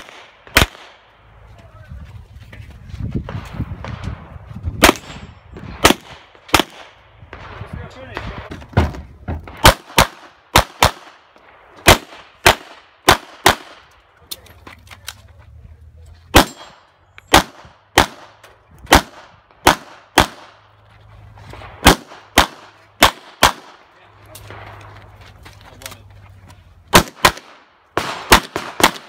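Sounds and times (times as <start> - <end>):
pistol shots with echo: 0.0 - 1.1, 4.8 - 7.6, 9.5 - 13.9, 16.3 - 20.6, 21.6 - 25.0, 26.9 - 29.0.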